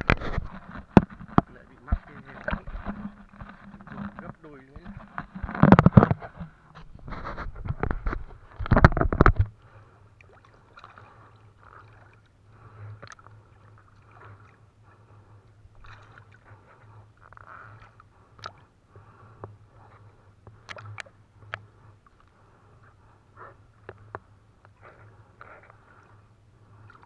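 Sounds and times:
water sloshing and dripping: 7.8s - 18.7s, 19.9s - 22.4s, 26.7s - 27.0s.

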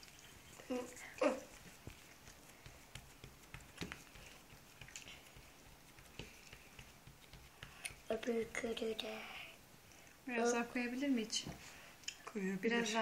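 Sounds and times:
hands pressing dough on a countertop: 1.1s - 8.6s.

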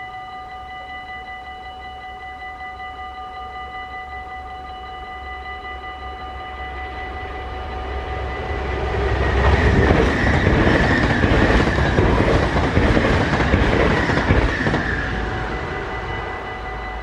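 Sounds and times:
level crossing warning bells: 0.0s - 17.0s
train wheels clattering over rails: 8.6s - 15.5s.

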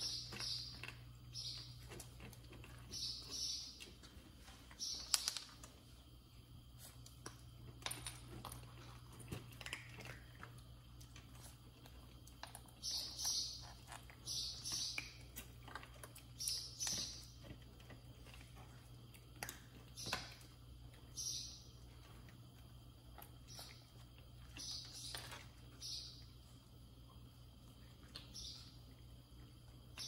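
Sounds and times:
kittens crunching dry kibble: 0.0s - 30.0s
small clicks of food and bowl: 0.2s - 3.0s, 6.8s - 21.2s.

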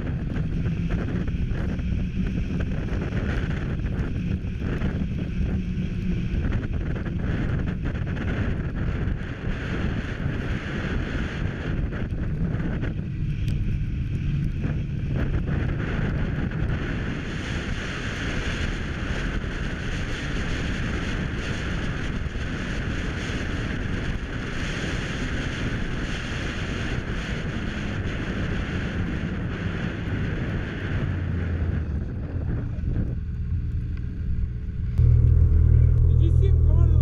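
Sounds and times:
snowmobile engine drone: 0.0s - 37.0s
wind rush on microphone: 0.0s - 37.0s
snowmobile engines idling: 32.2s - 37.0s.

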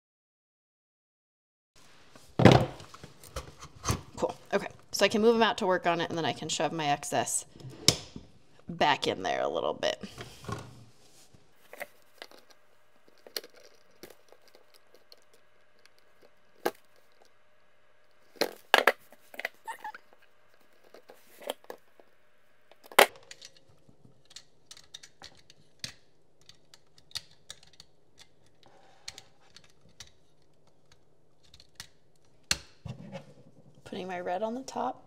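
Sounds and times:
wires rustling: 10.1s - 32.4s
wire strippers clicking and snipping: 22.8s - 32.8s.

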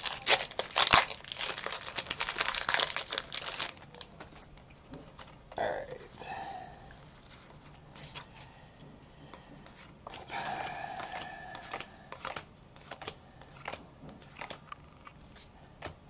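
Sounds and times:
trading cards snapping and sliding: 11.0s - 15.2s.

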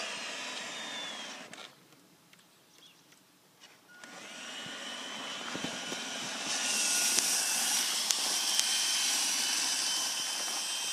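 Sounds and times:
toy truck motor whining: 0.0s - 1.8s, 4.0s - 10.9s
wheels over gravel: 3.6s - 10.9s
sharp clicks: 5.6s - 7.4s, 8.0s - 8.8s.

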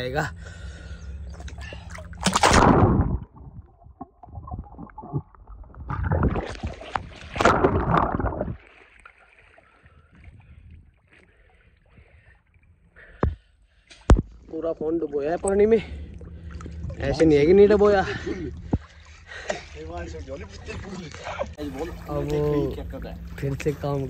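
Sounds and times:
muffled underwater swishing: 0.8s - 12.2s, 14.3s - 24.0s
splash into water: 1.4s - 3.7s, 4.7s - 9.9s.

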